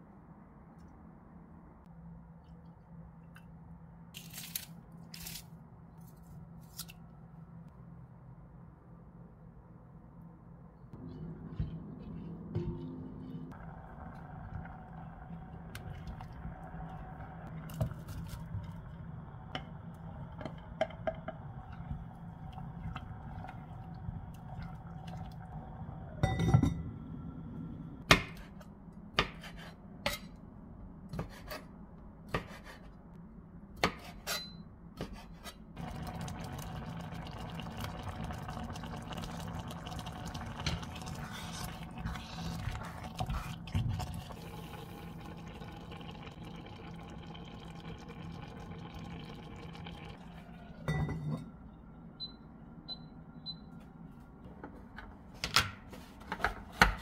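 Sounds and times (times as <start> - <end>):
liquid bubbling and hissing: 13.1 - 26.3, 35.8 - 51.0.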